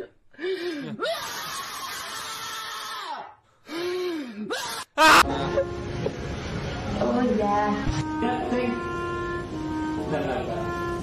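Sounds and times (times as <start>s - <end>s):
woman wailing: 4.5s - 5.7s.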